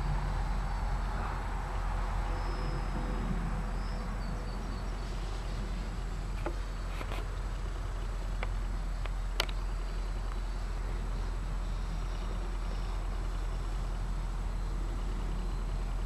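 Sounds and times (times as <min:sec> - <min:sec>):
distant model plane motor buzz: 0:00.0 - 0:16.0
steady hiss: 0:00.0 - 0:16.0
sharp clicks: 0:08.2 - 0:10.4.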